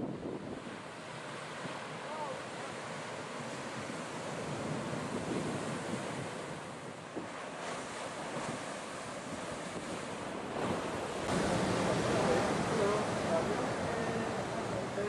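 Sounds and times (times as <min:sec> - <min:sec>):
wind buffeting microphone: 0:00.0 - 0:15.0
surf breaking on pebble beach: 0:11.2 - 0:15.0.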